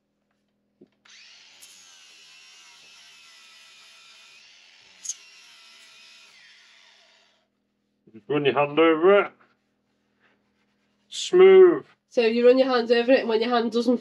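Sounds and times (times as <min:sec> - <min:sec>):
angle grinder grinding metal: 0:01.1 - 0:07.5
sharp high screech: 0:04.9 - 0:05.5.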